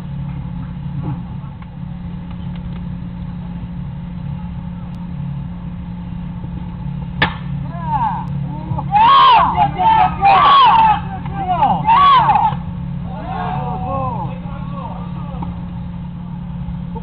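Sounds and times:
ballfield ambience: 0:00.0 - 0:17.0
low mechanical hum: 0:00.0 - 0:17.0
bat cracking against ball: 0:07.2 - 0:07.6.

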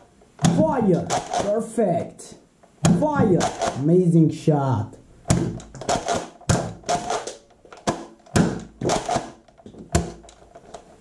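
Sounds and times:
toy blaster plastic clacks: 0:03.2 - 0:03.8, 0:05.6 - 0:10.8
foam darts hitting cans: 0:05.3 - 0:10.2.

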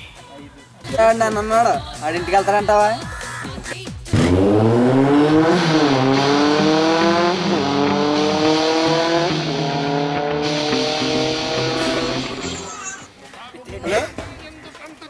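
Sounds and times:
motorcycle engine accelerating: 0:04.1 - 0:12.8.

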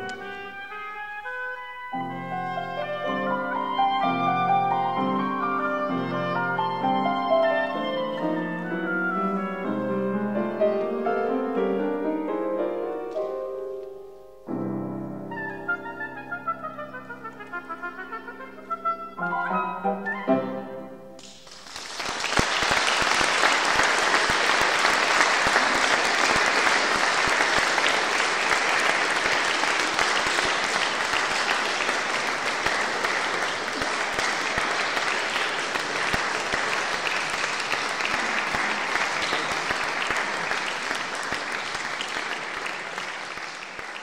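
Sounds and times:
audience applauding: 0:21.2 - 0:44.0.

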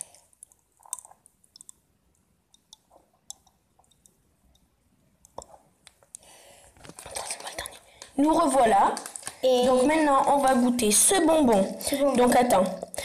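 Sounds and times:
popping candy crackling: 0:00.0 - 0:01.7, 0:06.8 - 0:13.0.

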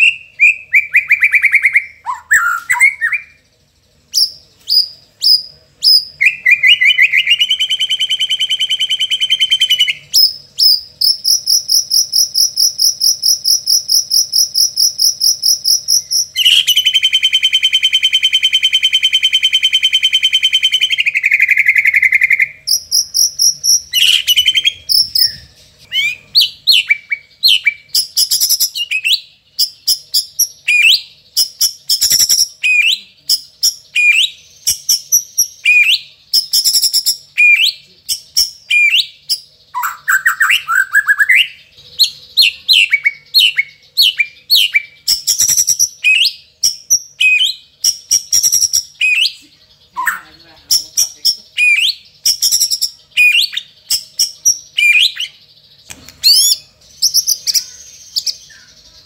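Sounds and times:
bird whistled song notes: 0:00.0 - 0:59.0
bird buzzing trill: 0:22.6 - 0:28.8.

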